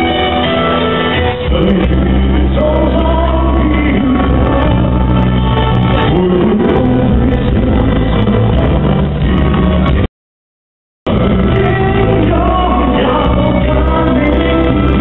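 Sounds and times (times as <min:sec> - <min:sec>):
amplified backing track: 0:00.0 - 0:10.1, 0:11.1 - 0:15.0
held bass notes: 0:00.0 - 0:10.1, 0:11.1 - 0:15.0
man singing into a microphone: 0:01.1 - 0:08.6, 0:11.1 - 0:15.0.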